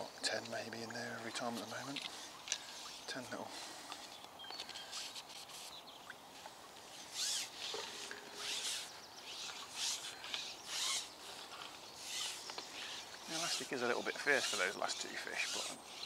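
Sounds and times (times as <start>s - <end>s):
fishing pole rubbing through hands: 4.8s - 5.9s, 6.9s - 16.0s.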